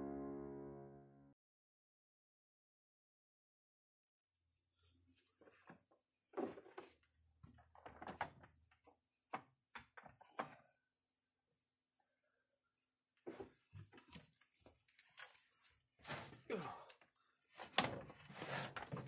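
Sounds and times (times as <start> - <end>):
insect chirping: 4.4 - 19.0.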